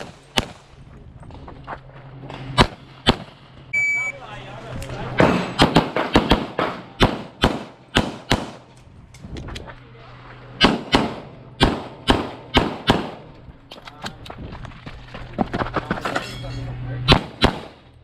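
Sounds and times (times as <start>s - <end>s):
pistol shots with echo: 5.2s - 8.7s, 10.6s - 13.3s, 17.1s - 17.8s.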